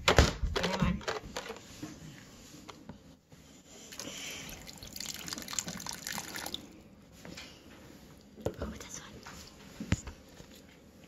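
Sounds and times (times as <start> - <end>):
liquid dripping and slopping: 3.9 - 6.8.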